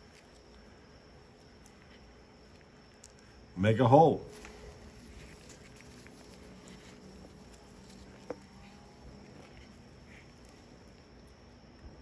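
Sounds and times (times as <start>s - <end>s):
gloved hands handling carcass: 4.0s - 11.7s.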